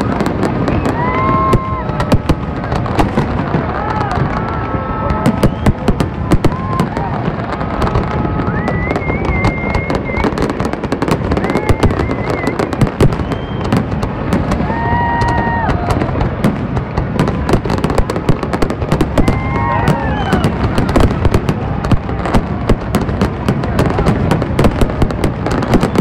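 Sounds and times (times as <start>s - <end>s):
fireworks bursts and bangs: 0.0s - 26.0s.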